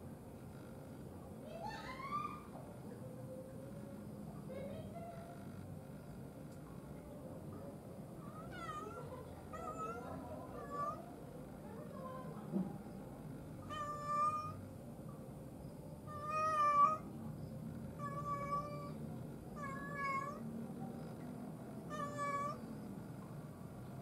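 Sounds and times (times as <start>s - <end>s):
cat meowing: 8.2s - 11.1s, 13.7s - 14.6s, 16.1s - 17.1s, 18.0s - 19.0s, 19.6s - 20.4s, 21.9s - 22.7s.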